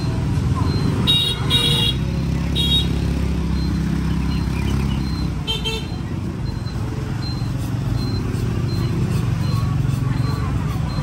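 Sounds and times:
scooter engines rumbling: 0.0 - 11.0
scooter horn beeps: 0.6 - 3.0, 5.0 - 6.1.

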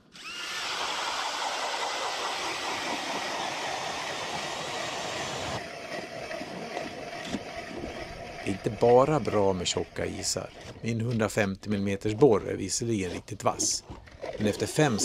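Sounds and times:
ice auger grinding through ice: 0.0 - 5.6.

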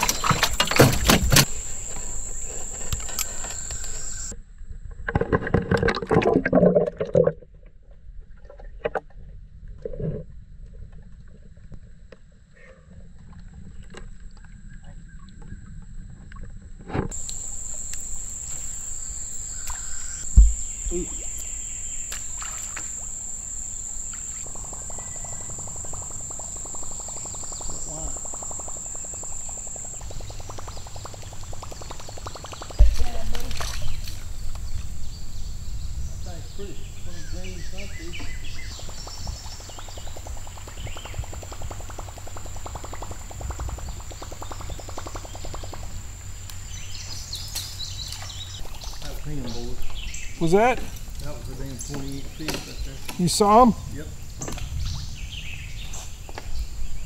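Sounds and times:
insects buzzing: 0.0 - 4.4, 17.1 - 57.0
low thump against kayak: 20.2 - 21.5.

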